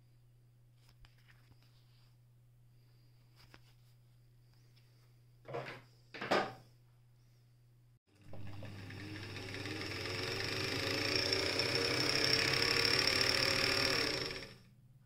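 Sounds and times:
electric sewing machine running: 8.1s - 14.7s.

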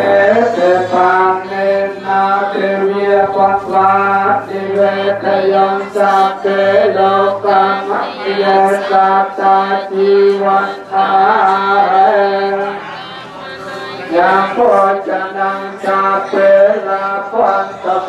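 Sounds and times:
voices chanting together: 0.0s - 18.0s.

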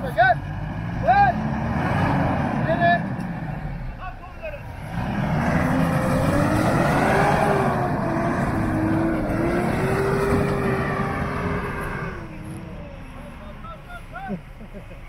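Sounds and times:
pickup engine revving hard: 0.4s - 3.7s, 4.7s - 12.6s.

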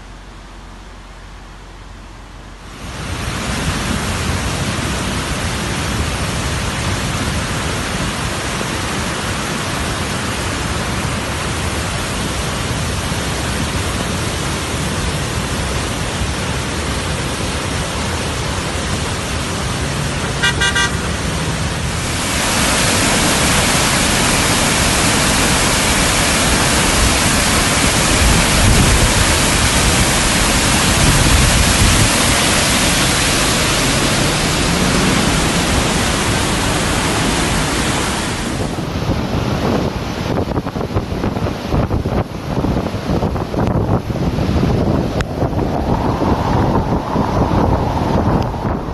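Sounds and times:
flood water rushing: 0.0s - 48.9s
car horn toot: 20.4s - 21.2s.

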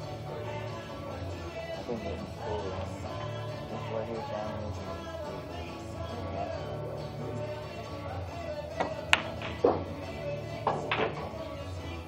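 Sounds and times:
background music: 0.0s - 12.0s
pool balls clicking: 8.7s - 11.6s.

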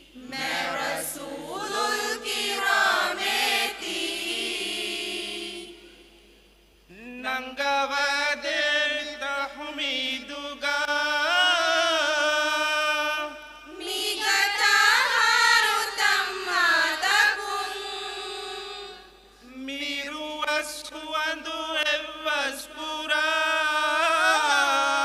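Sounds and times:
group singing unaccompanied: 0.0s - 6.2s, 13.7s - 19.2s.

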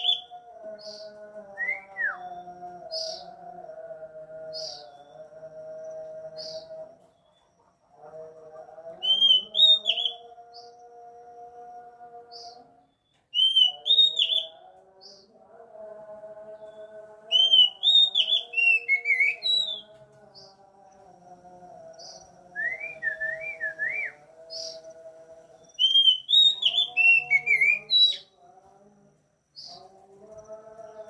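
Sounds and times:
bird singing whistled phrases: 0.0s - 0.3s, 9.1s - 10.2s, 13.3s - 14.6s, 17.3s - 19.8s, 25.8s - 28.3s.

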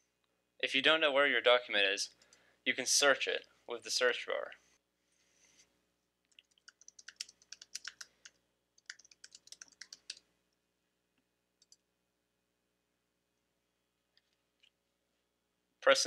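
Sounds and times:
typing on computer keyboard: 6.3s - 10.2s, 11.6s - 11.8s.

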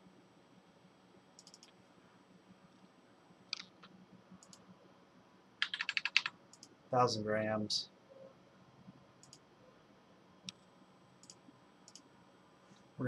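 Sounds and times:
keyboard keystrokes: 1.4s - 1.7s, 5.6s - 6.7s
computer mouse clicks: 1.4s - 1.8s, 3.5s - 4.6s, 5.6s - 6.8s, 9.2s - 9.4s, 10.4s - 12.1s.

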